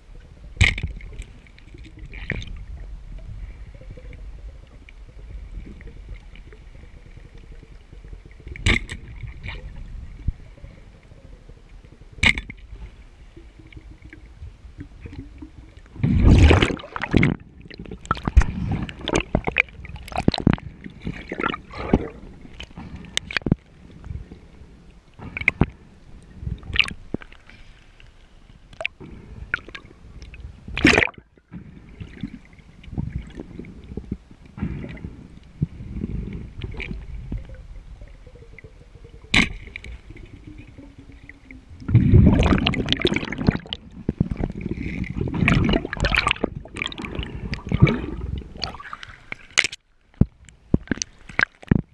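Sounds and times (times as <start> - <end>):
muffled underwater sloshing: 0.0 - 51.9
water rushing: 12.2 - 23.5, 36.6 - 49.8.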